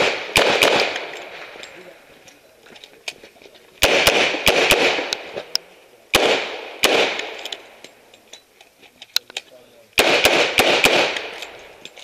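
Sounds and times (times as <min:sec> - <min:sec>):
revolver gunshots: 0:00.0 - 0:01.6, 0:03.8 - 0:05.5, 0:06.1 - 0:07.8, 0:10.0 - 0:11.6.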